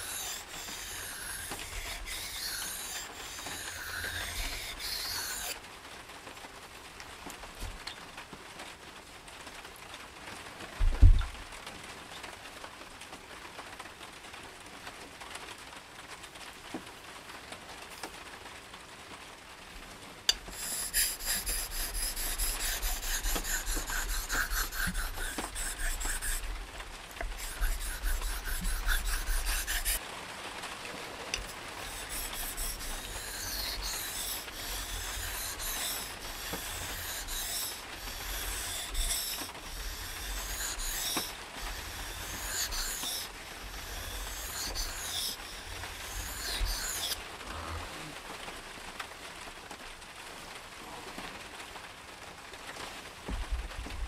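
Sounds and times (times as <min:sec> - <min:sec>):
knife scraping on sharpening stone: 0:00.0 - 0:05.6, 0:20.3 - 0:26.5, 0:27.2 - 0:30.0, 0:31.4 - 0:47.2.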